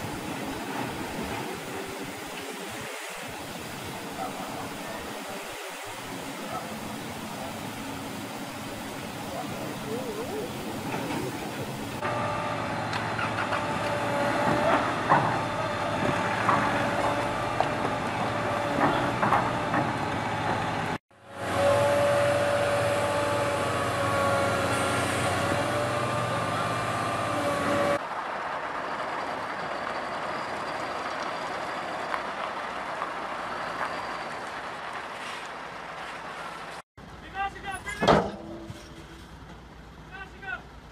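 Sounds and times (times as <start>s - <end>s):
heavy diesel machinery running: 6.1s - 32.8s.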